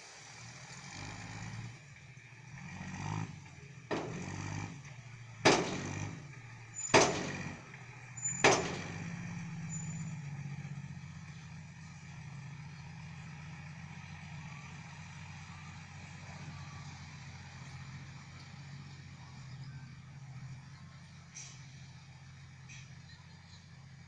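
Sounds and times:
diesel truck engine running: 0.0s - 24.0s
sharp loud bangs: 5.4s - 7.6s, 8.3s - 9.3s.

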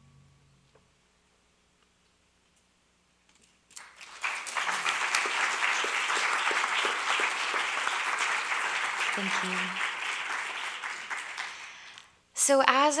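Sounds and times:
audience applause: 3.7s - 12.1s.

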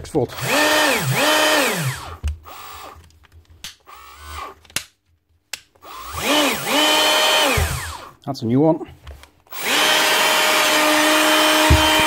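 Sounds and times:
drill motor spinning: 0.3s - 3.0s, 3.8s - 4.6s, 5.8s - 8.1s, 9.5s - 12.0s.

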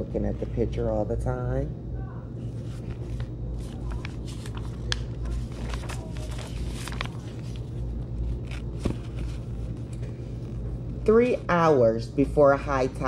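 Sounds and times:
steady low hum: 0.0s - 13.0s
book pages rustling: 2.4s - 11.4s.

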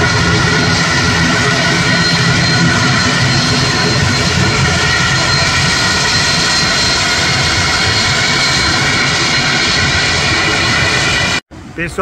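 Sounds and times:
turboprop engines at high power: 0.0s - 12.0s.

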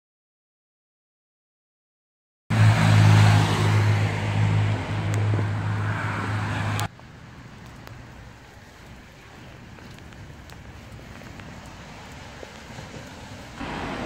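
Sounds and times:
distant traffic: 2.5s - 14.0s
rain: 5.9s - 14.0s
diesel truck engine running: 13.6s - 14.0s.

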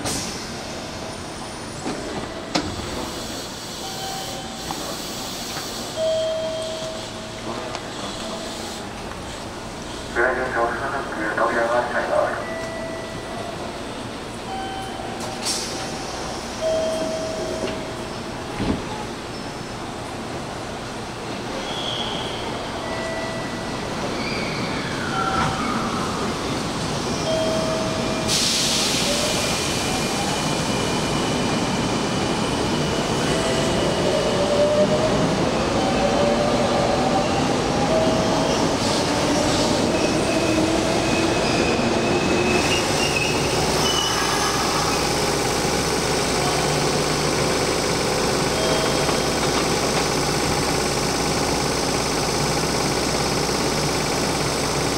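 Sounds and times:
train running noise: 0.0s - 54.9s
train air hiss: 2.7s - 6.2s, 28.3s - 31.3s.

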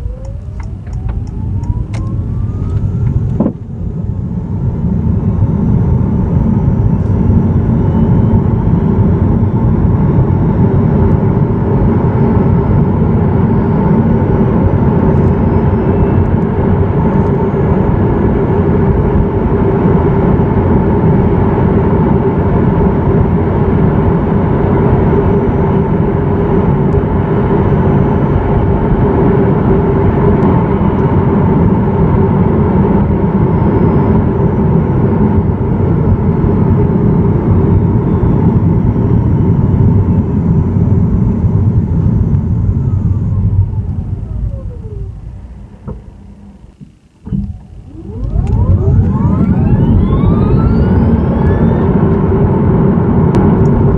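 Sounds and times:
electric motor whine: 0.0s - 3.7s, 37.5s - 53.9s
road and tyre noise: 0.0s - 53.9s.

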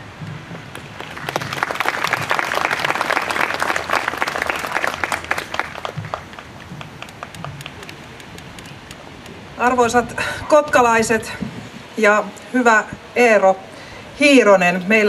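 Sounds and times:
audience applauding: 0.7s - 9.4s.

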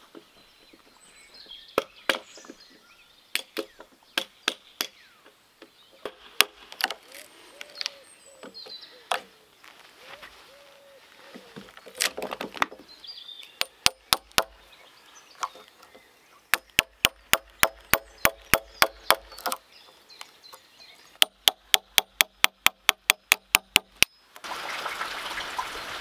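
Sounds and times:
hammer striking chisel into wood: 13.6s - 14.5s, 16.5s - 19.6s, 21.2s - 24.1s.

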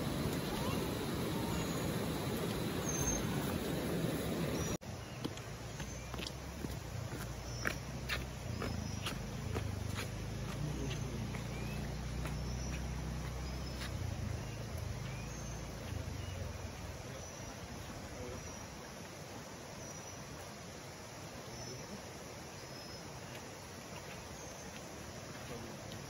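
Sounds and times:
faint high chirps: 0.0s - 3.8s
insects chirring: 0.0s - 26.0s.

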